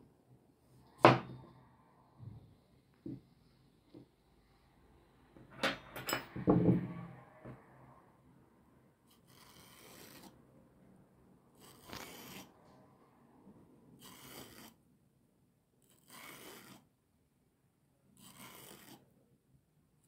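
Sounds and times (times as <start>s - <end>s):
fork scraping zucchini skin: 11.6s - 12.5s, 15.8s - 16.8s, 18.2s - 19.0s.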